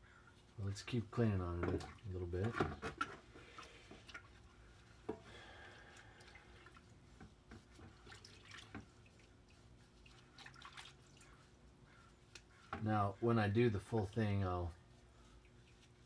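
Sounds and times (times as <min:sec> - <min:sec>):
liquid sloshing in bucket: 0:01.6 - 0:11.7.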